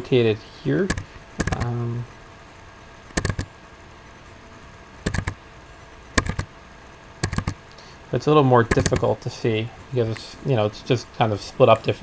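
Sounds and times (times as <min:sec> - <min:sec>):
computer mouse double-clicks: 0:00.9 - 0:01.7, 0:03.1 - 0:03.5, 0:05.0 - 0:05.4, 0:06.2 - 0:06.5, 0:07.2 - 0:07.6, 0:08.7 - 0:09.1.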